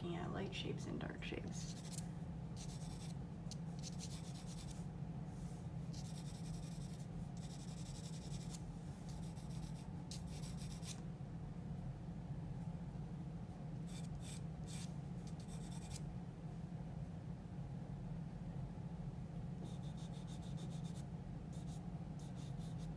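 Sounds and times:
steady low hum: 0:00.0 - 0:22.9
pencil scratching on paper: 0:01.7 - 0:02.0, 0:02.6 - 0:03.2, 0:03.8 - 0:04.8, 0:05.9 - 0:11.0, 0:13.9 - 0:16.0, 0:19.6 - 0:22.9.

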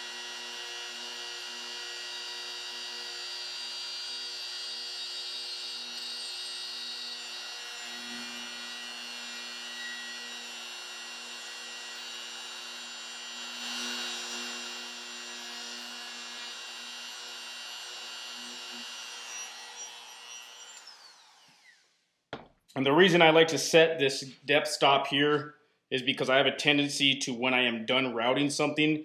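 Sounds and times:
router whining through wood: 0:00.0 - 0:22.5.

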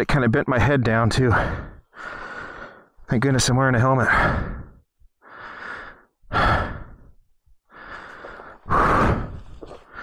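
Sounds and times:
man breathing heavily: 0:01.2 - 0:03.1, 0:04.0 - 0:10.0.

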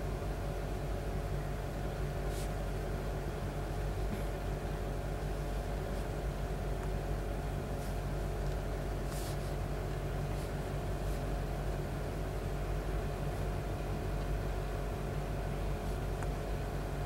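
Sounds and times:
low mechanical hum with hiss: 0:00.0 - 0:17.0
faint rustles: 0:07.6 - 0:11.4.

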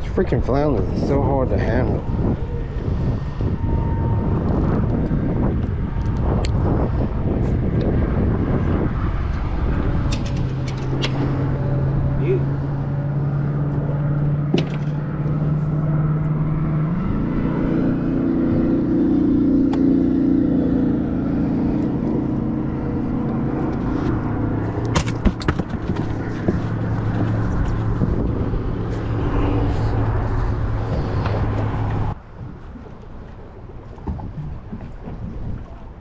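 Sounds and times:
ice chest knocks and rattles: 0:24.9 - 0:26.5.

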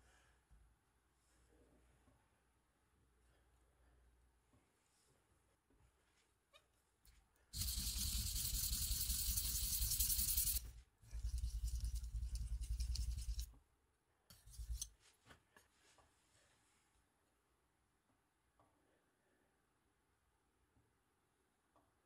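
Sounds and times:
knife scraping on whetstone: 0:07.6 - 0:13.5, 0:14.3 - 0:15.0.

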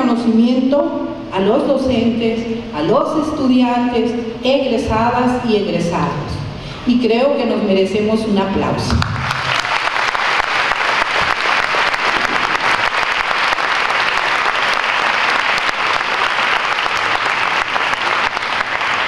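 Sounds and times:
audience applauding: 0:09.0 - 0:19.0.

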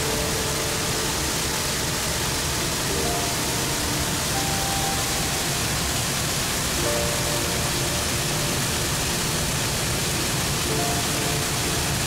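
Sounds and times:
water pouring over waterfall: 0:00.0 - 0:12.0.

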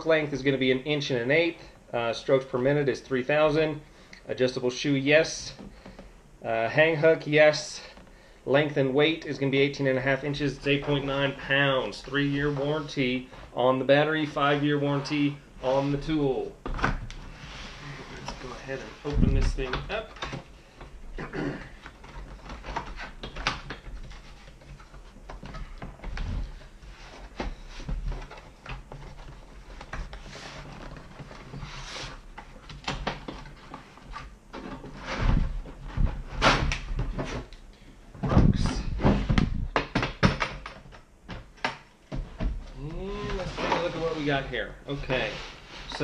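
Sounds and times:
cardboard scraping and rustling: 0:42.4 - 0:46.0.

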